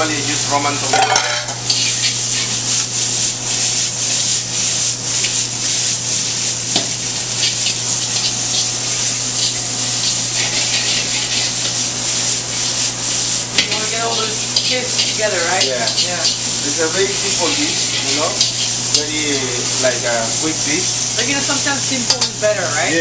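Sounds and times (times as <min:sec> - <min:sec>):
food sizzling in a wok: 0:00.0 - 0:23.0
metal tongs scraping pan: 0:00.8 - 0:02.6, 0:07.3 - 0:12.8, 0:13.5 - 0:20.8, 0:22.1 - 0:22.4.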